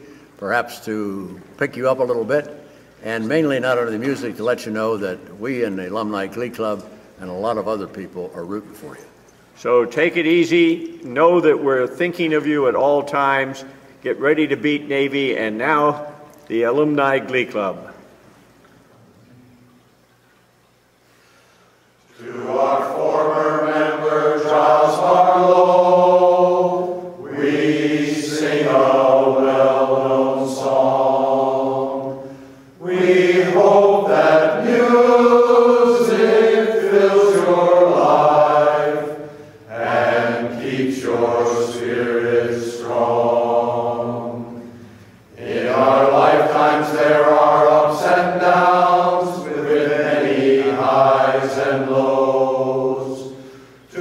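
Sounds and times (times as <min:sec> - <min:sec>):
male choir singing unaccompanied: 0:22.1 - 0:54.0.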